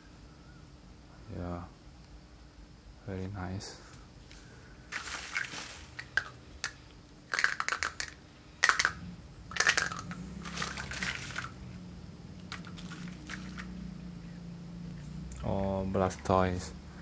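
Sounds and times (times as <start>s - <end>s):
bubble wrap rustling: 4.9s - 8.1s, 9.6s - 11.6s
plastic toy figures clicking: 6.0s - 10.2s.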